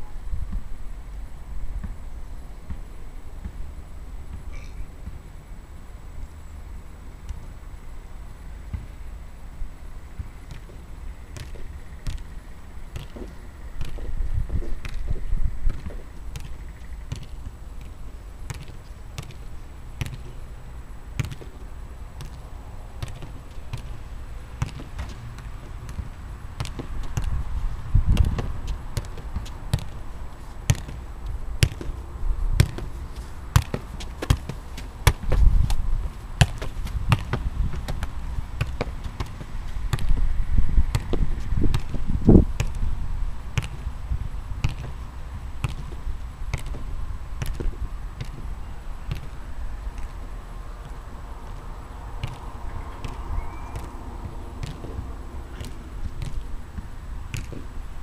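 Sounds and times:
football taps: 0:12.9 - 0:19.4, 0:20.0 - 0:20.4, 0:21.2 - 0:21.6, 0:24.6 - 0:27.4, 0:28.0 - 0:30.0, 0:30.7 - 0:32.0, 0:32.6 - 0:40.3, 0:40.9 - 0:42.8, 0:44.6 - 0:45.0, 0:45.6 - 0:48.5, 0:50.8 - 0:56.5, 0:57.3 - 0:57.7.

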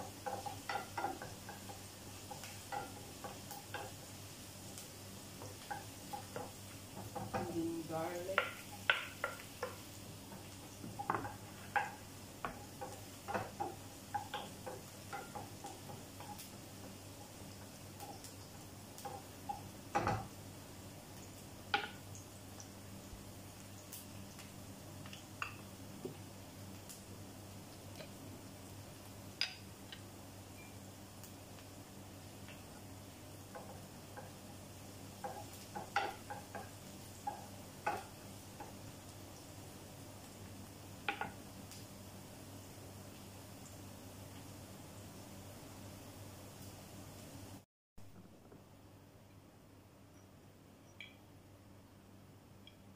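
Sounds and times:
wooden spatula knocking on a pan: 0:00.0 - 0:04.0, 0:05.4 - 0:17.0, 0:19.0 - 0:20.4, 0:21.7 - 0:22.0, 0:33.5 - 0:34.4, 0:35.2 - 0:38.8, 0:41.0 - 0:41.4
onions sizzling: 0:00.0 - 0:48.1.

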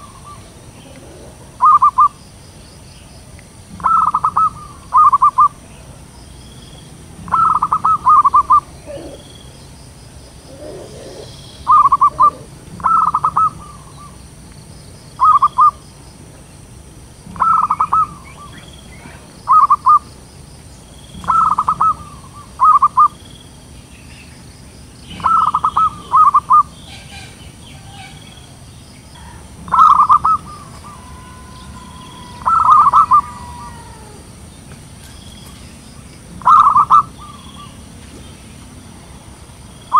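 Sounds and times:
dove cooing: 0:00.0 - 0:02.2, 0:03.7 - 0:06.0, 0:07.2 - 0:09.7, 0:10.3 - 0:14.2, 0:15.2 - 0:15.8, 0:17.3 - 0:20.0, 0:21.2 - 0:23.2, 0:25.1 - 0:34.5, 0:36.3 - 0:37.9
small birds chirping: 0:00.0 - 0:39.9.

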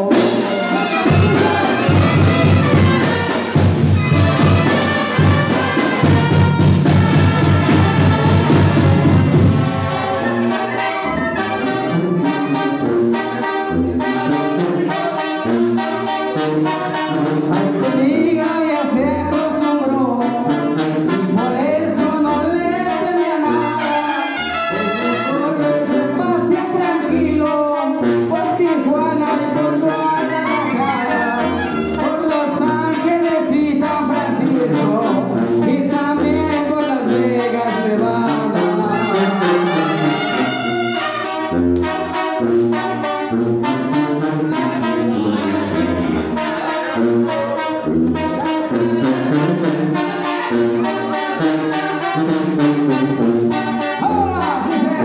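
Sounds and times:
percussion beat: 0:00.0 - 0:22.3, 0:28.3 - 0:43.8, 0:44.5 - 0:55.0
brass band melody: 0:00.0 - 0:55.0
sousaphone bass notes: 0:28.0 - 0:37.4.

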